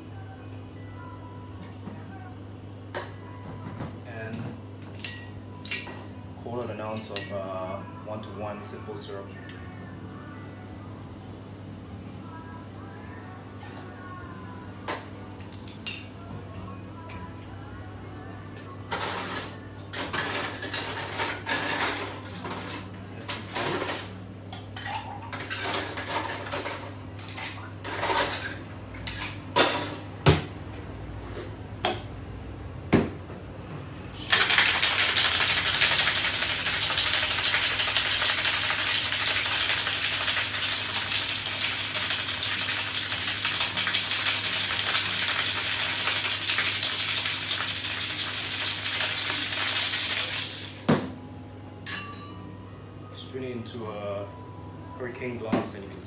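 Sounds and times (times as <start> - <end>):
ice clinking and clattering: 34.3 - 50.8.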